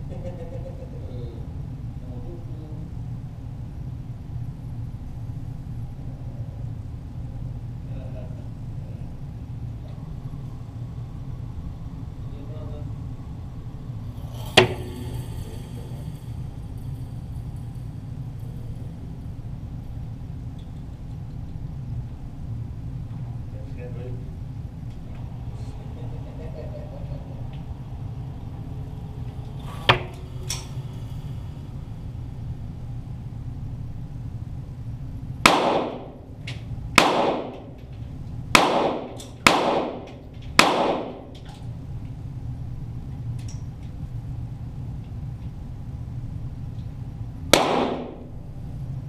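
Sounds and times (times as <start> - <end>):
steady low hum: 0.0 - 49.0
pistol shots echoing: 35.4 - 36.2, 37.0 - 37.7, 38.6 - 41.3, 47.6 - 48.3.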